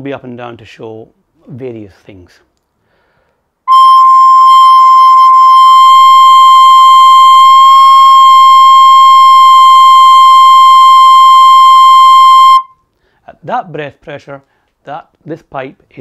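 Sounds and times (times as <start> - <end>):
recorder head joint high note: 3.7 - 12.7.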